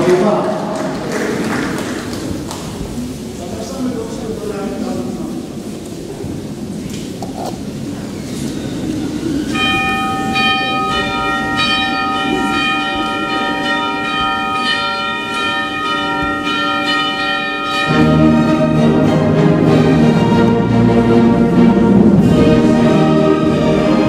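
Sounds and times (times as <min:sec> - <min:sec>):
low background noise: 0:00.0 - 0:24.0
bells ringing slow melody: 0:09.2 - 0:24.0
orchestra low sustained chord: 0:09.5 - 0:24.0.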